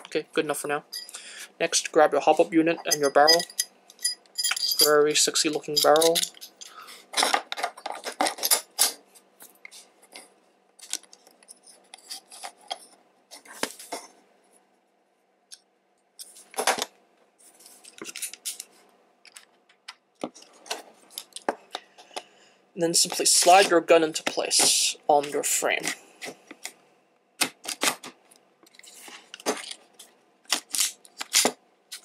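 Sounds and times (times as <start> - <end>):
small parts clicking and clinking: 2.8 - 9.0.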